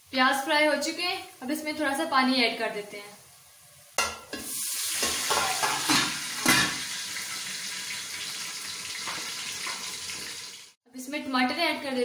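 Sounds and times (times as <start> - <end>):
onions sizzling in a pan: 0.0 - 10.8
water pouring: 4.6 - 10.8.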